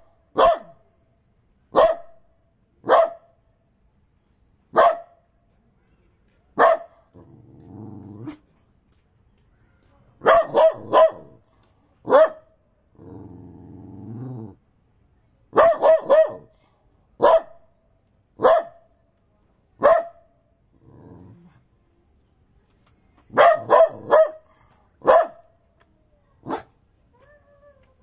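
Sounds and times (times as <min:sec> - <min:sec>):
dog barking sharply: 0:00.4 - 0:00.8, 0:01.8 - 0:02.1, 0:10.2 - 0:11.3, 0:23.4 - 0:24.4
dog growling low: 0:07.1 - 0:08.4, 0:12.9 - 0:14.6, 0:20.8 - 0:21.6.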